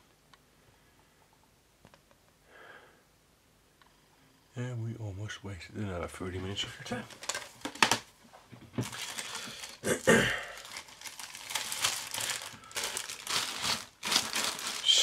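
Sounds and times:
plastic bag crinkling: 6.9 - 8.1, 8.8 - 15.0.

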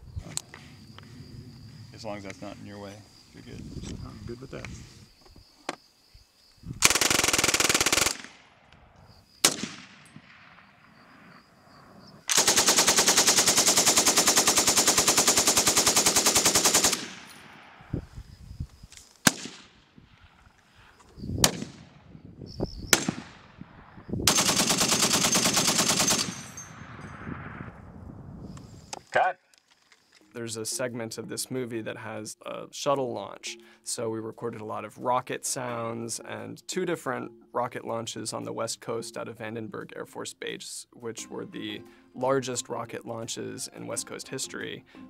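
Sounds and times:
automatic gunfire bursts: 6.8 - 8.4, 12.3 - 17.3, 24.3 - 26.4
single gunshots echoing: 9.4 - 11.0, 19.2 - 20.3, 21.4 - 22.0, 22.9 - 23.6.

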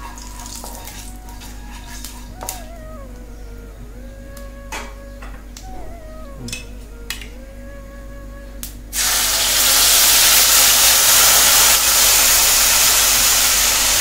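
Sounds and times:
food sizzling in hot oil: 0.0 - 2.3, 8.9 - 14.0.

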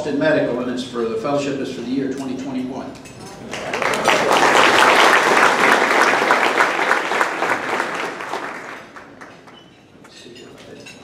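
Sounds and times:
audience applauding: 3.5 - 9.6.

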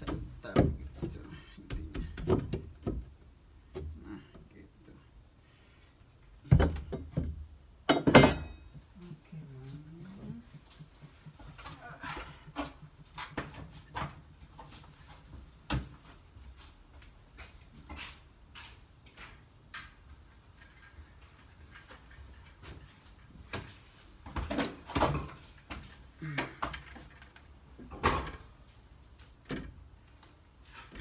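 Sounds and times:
wood and tools knocking: 0.0 - 4.1, 6.4 - 9.0, 10.1 - 14.4.

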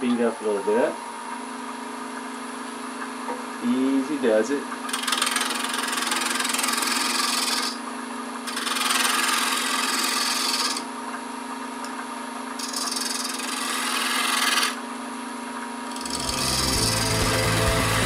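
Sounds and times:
lathe humming: 4.8 - 7.8, 8.5 - 10.9, 15.9 - 18.0.

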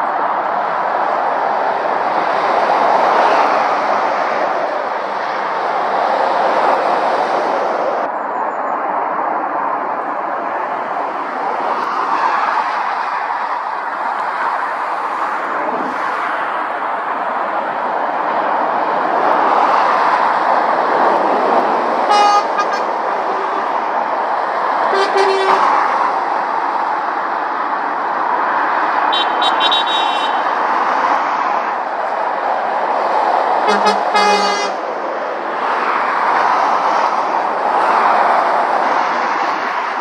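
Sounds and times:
motorway traffic roar: 0.0 - 40.0
horn toots: 22.1 - 23.6, 24.9 - 25.8, 29.1 - 30.4, 33.7 - 34.8.

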